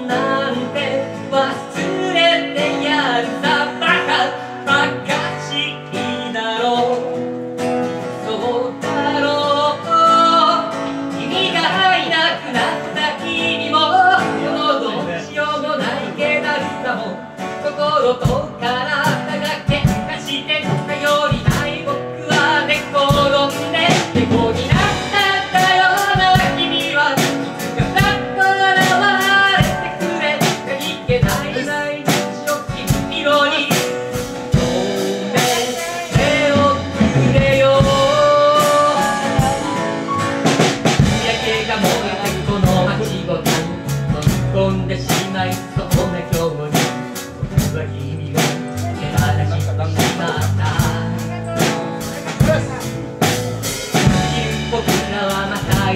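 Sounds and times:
acoustic guitar: 0:00.0 - 0:55.9
drum kit: 0:00.0 - 0:55.9
keyboard: 0:00.0 - 0:55.9
pitched melody line: 0:34.5 - 0:44.7.

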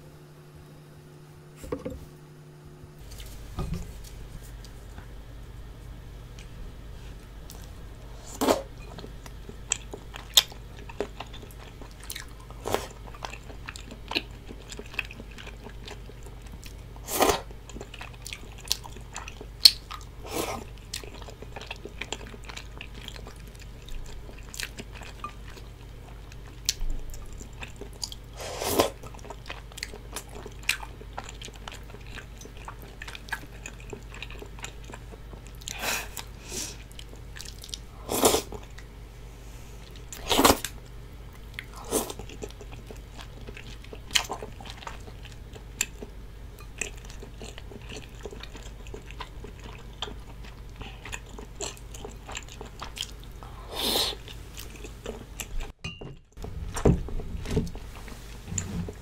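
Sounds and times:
close chewing with wet mouth sounds: 0:08.9 - 0:38.9, 0:39.8 - 0:55.8.

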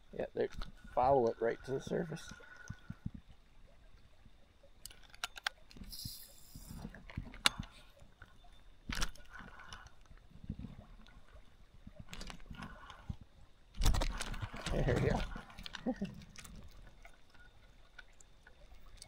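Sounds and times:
brief hiss: 0:05.8 - 0:06.8.

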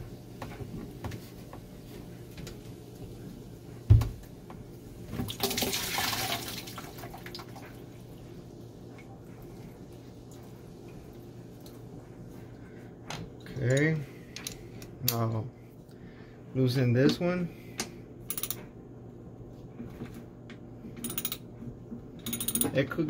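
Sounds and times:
water splashing into plastic bucket: 0:05.2 - 0:07.6.

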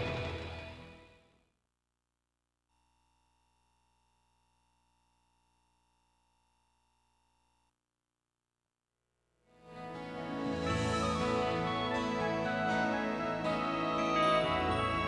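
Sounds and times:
music: 0:00.0 - 0:01.4, 0:09.5 - 0:15.0
faint electronic tone humming: 0:02.7 - 0:07.8.

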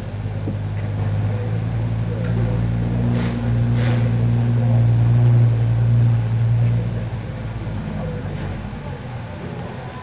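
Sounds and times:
low engine drone: 0:00.0 - 0:10.0.

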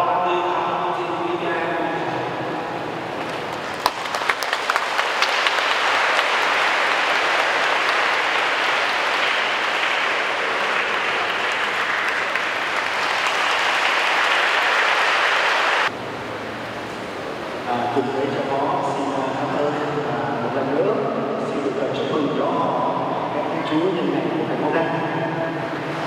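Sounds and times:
congregation applauding: 0:03.1 - 0:15.9.

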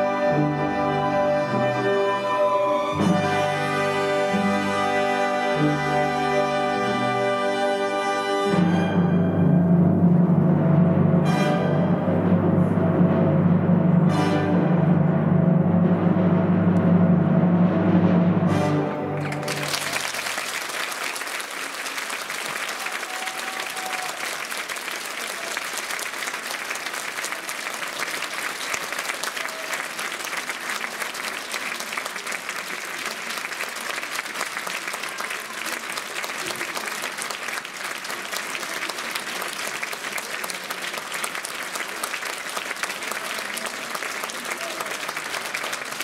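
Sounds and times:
audience applauding: 0:19.0 - 0:46.0.

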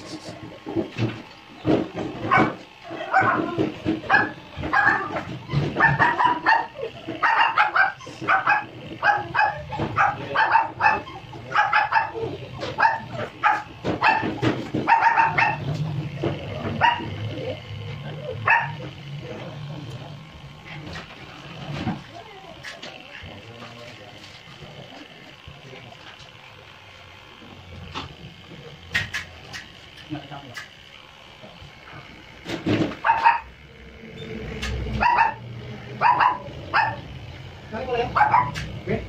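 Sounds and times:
electric clipper humming: 0:00.0 - 0:39.0
dog barking and yipping: 0:02.2 - 0:19.1, 0:32.9 - 0:33.6, 0:34.7 - 0:37.1, 0:38.0 - 0:38.7.

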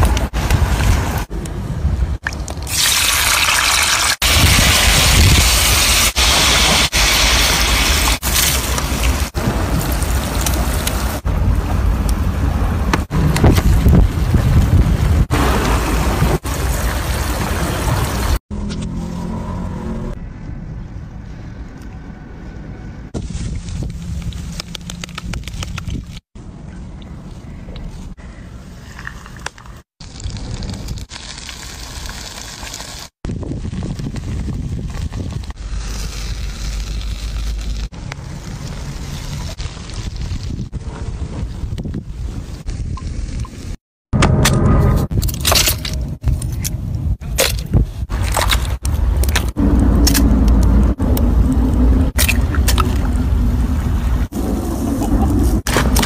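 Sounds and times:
wood fire crackling: 0:30.0 - 0:40.7
low rumble: 0:43.5 - 0:56.0.

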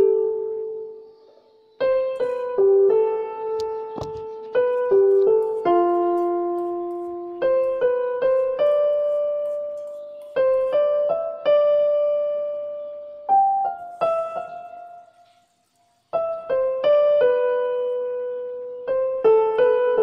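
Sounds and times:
slow piano melody: 0:00.0 - 0:20.0.

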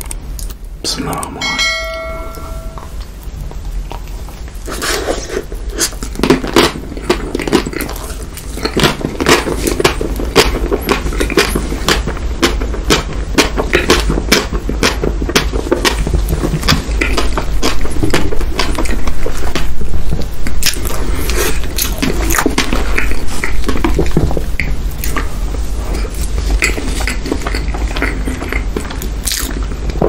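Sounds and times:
chewing with wet mouth smacks: 0:03.8 - 0:30.0.

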